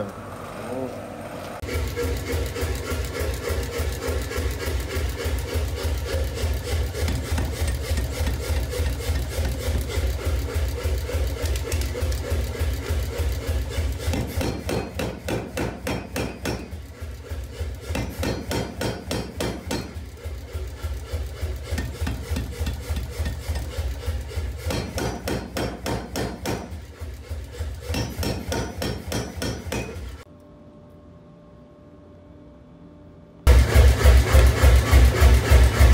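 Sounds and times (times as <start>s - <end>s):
machine hum: 0.0s - 35.9s
power hammer striking hot steel: 1.6s - 30.3s.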